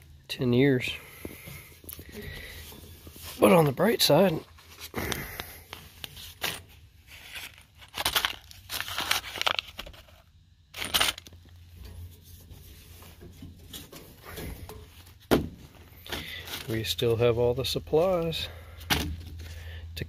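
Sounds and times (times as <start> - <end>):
paper packet crinkling and tearing: 7.0 - 11.4.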